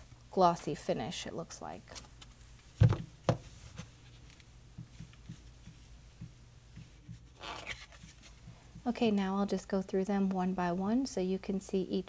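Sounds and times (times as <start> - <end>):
cards clicking and rubbing: 7.3 - 8.4.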